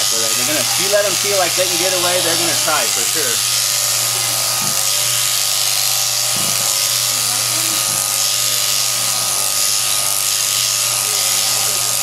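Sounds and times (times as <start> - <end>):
electric shears humming: 0.0 - 12.0.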